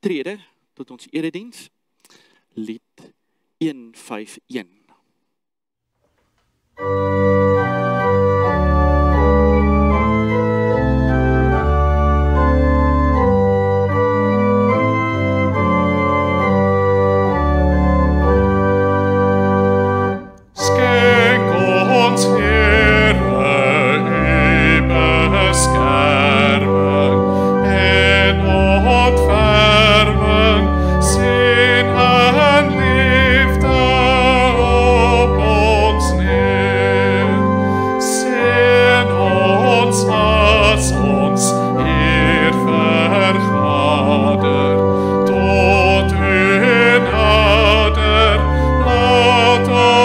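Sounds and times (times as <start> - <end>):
organ playing a hymn: 6.8 - 50.0
voices singing a hymn: 20.6 - 50.0.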